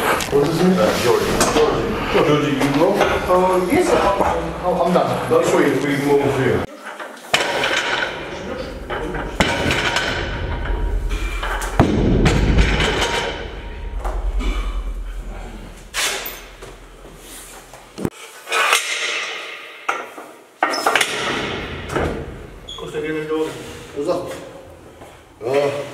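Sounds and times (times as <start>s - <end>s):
metal clanks of bar: 7.0s - 17.0s
barbell thud on platform: 11.7s - 14.8s.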